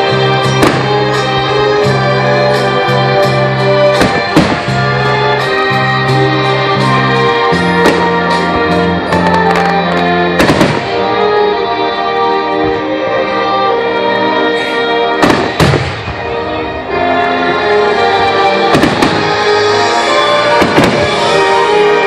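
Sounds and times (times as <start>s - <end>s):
music with organ-like chords: 0.0s - 22.0s
fireworks bursting with bangs: 0.4s - 1.8s, 3.6s - 5.6s, 7.4s - 11.2s, 15.2s - 16.3s, 18.3s - 22.0s.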